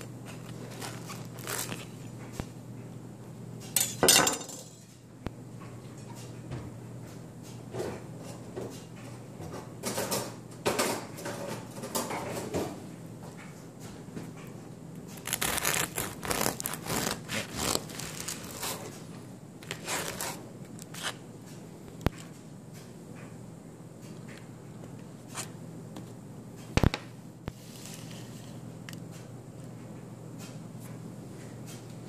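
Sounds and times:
bread knife sawing through bread: 15.2s - 18.8s.

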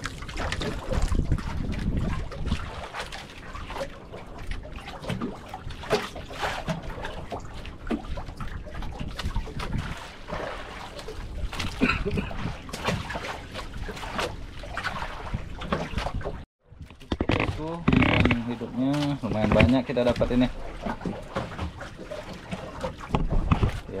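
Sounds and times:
water splashing and trickling: 0.0s - 24.0s
knocks on boat: 23.0s - 23.8s.

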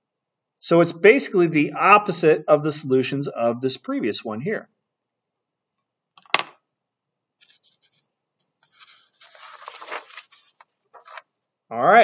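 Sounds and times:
faint scratchy rubbing: 7.4s - 11.2s
paper rustling and sliding: 7.4s - 11.3s.

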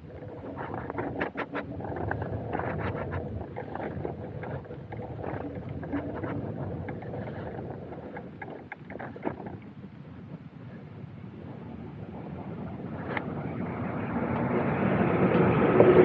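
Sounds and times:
freight train rumbling: 11.5s - 16.0s
wheels clacking on track: 13.1s - 16.0s.

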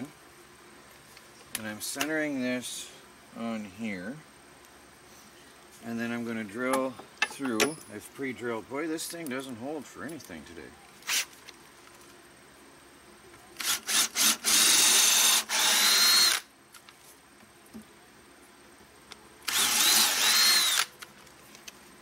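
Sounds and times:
cordless drill boring wood: 13.6s - 16.5s, 19.5s - 20.9s.

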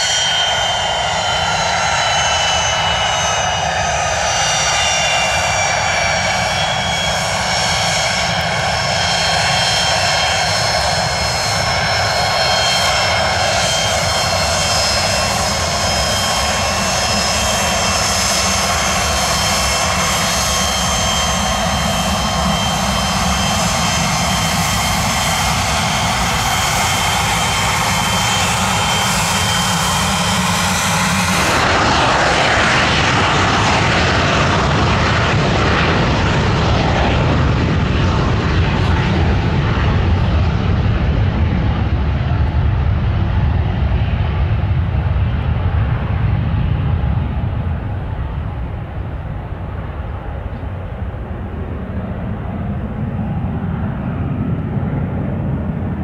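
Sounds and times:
jet takeoff roar: 0.0s - 56.0s
jet taxiing roar with turbine whine: 0.0s - 56.0s.

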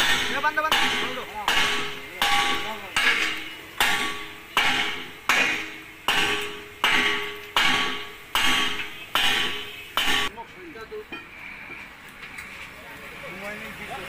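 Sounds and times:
hammer strikes ringing: 0.0s - 10.3s.

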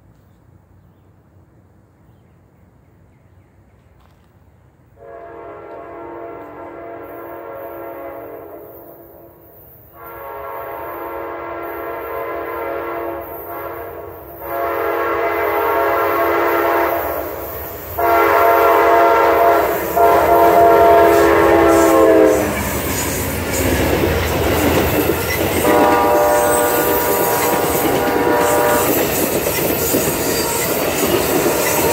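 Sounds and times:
train rumbling past: 3.8s - 31.9s
train horn blasts: 5.0s - 24.6s, 25.3s - 29.3s, 30.1s - 31.9s
wheels clacking on rail joints: 19.8s - 31.9s.

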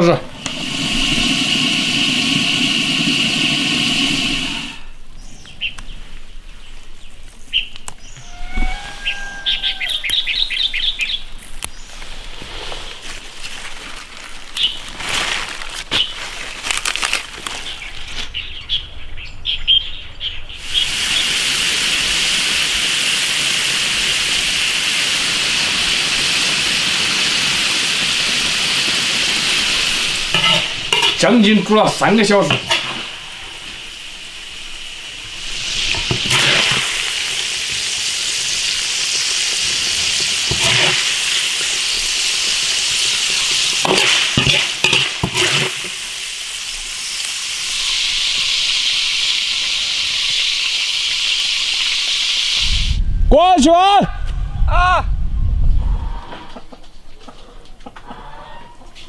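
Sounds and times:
food hissing in a wok: 0.0s - 5.0s, 8.3s - 10.9s, 20.6s - 53.0s
birds chirping: 3.9s - 12.0s
lettuce rustling being picked: 11.4s - 18.4s.

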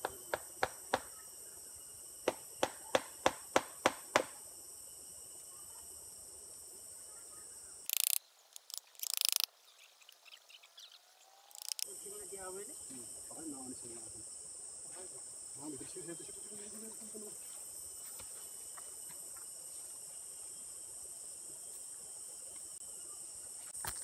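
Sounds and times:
high insect chorus: 0.0s - 24.0s.

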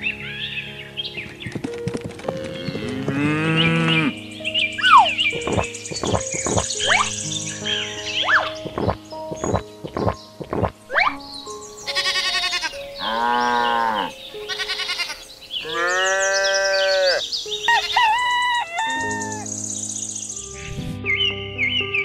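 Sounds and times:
background music: 0.0s - 22.0s
sheep bleating: 11.9s - 17.2s.

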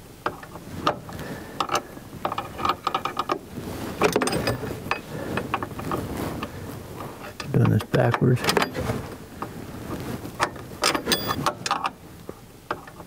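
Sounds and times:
wrenches clinking on metal: 4.0s - 5.1s, 10.8s - 11.9s.

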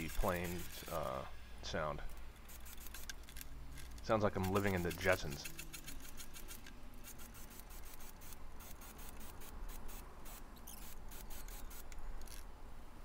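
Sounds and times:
rapid short clicks: 2.4s - 12.4s
high squeaky chirps: 5.4s - 12.2s.

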